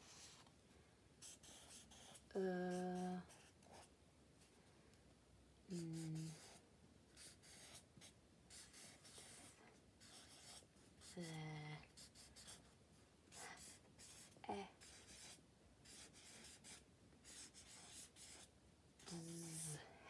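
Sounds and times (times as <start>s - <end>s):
pen scratching on paper: 1.2s - 3.9s, 5.8s - 6.6s, 7.2s - 11.2s, 11.9s - 12.7s, 13.3s - 19.8s.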